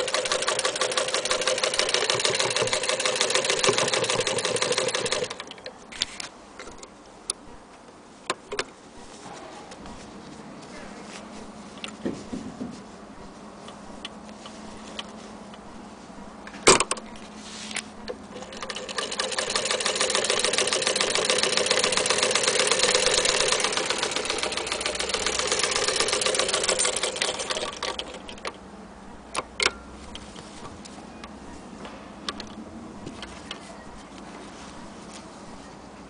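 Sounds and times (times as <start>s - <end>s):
sewing machine stitching: 0.0s - 5.6s, 18.1s - 28.6s.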